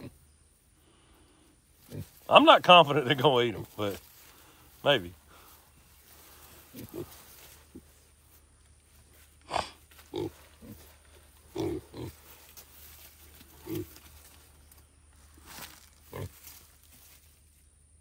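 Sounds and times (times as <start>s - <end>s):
pigs grunting: 0.0s - 0.2s, 1.1s - 5.4s, 6.2s - 8.0s, 9.4s - 12.4s, 13.5s - 14.4s, 16.0s - 16.4s.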